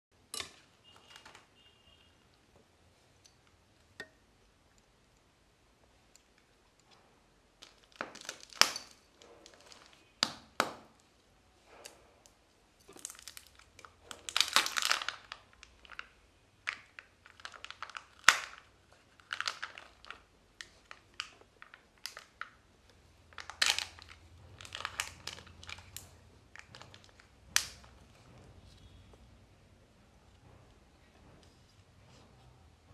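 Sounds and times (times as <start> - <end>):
foil wrapper crinkling and tearing: 7.6 - 10.1, 12.9 - 22.6, 23.3 - 27.9.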